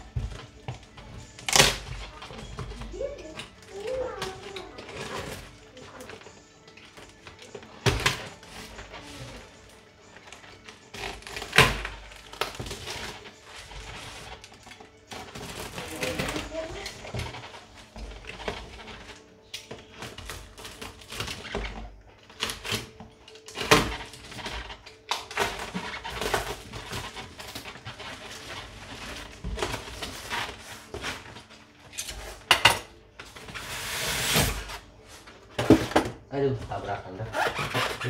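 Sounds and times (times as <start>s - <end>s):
cardboard scraping: 0.0s - 6.4s, 7.1s - 23.0s, 23.6s - 32.5s, 33.2s - 38.0s
plastic wrap crinkling: 0.0s - 32.6s, 33.2s - 38.0s
cardboard ripping: 10.3s - 14.5s, 15.1s - 19.2s, 33.4s - 34.9s, 37.1s - 38.0s.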